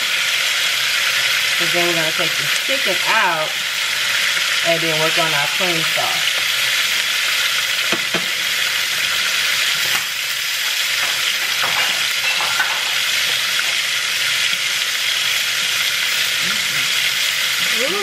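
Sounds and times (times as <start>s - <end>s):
chicken sizzling in a frying pan: 0.0s - 18.0s.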